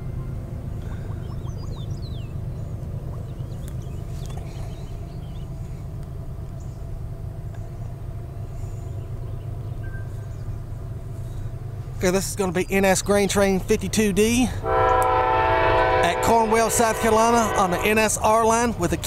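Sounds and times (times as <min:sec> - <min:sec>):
bird chirping: 0:00.0 - 0:05.9, 0:07.6 - 0:11.6
diesel locomotive rumble: 0:00.0 - 0:19.0.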